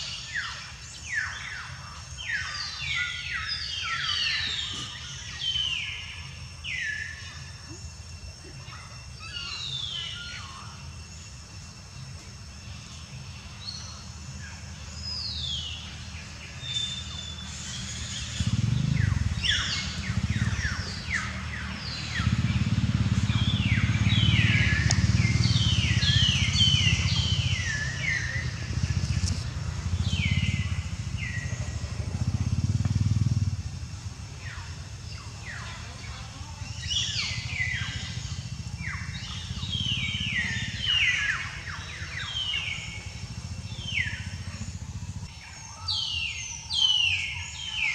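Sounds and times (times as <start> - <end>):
birds chirping: 0.0 - 47.9
loud low rumble: 17.2 - 35.6, 36.6 - 45.3.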